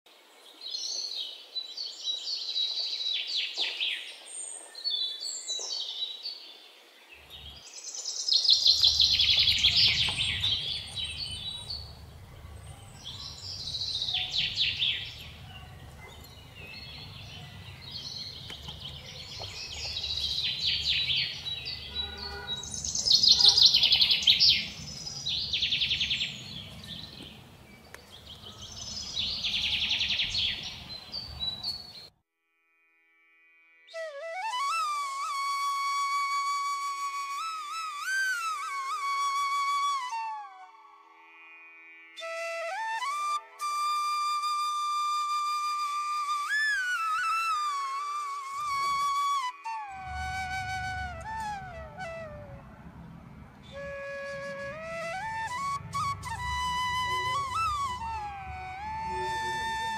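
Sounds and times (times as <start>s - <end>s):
birds chirping and trilling: 0.2s - 32.1s, 48.7s - 59.9s.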